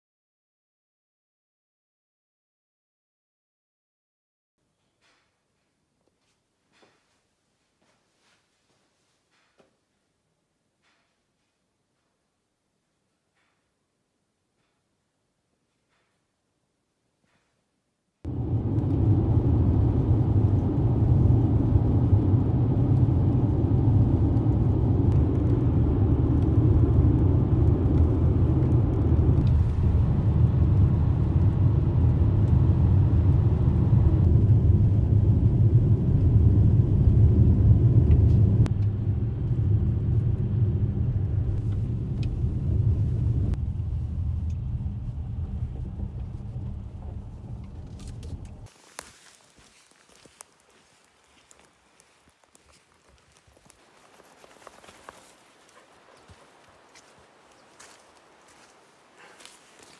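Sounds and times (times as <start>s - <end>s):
car cabin road noise: 18.3s - 48.7s.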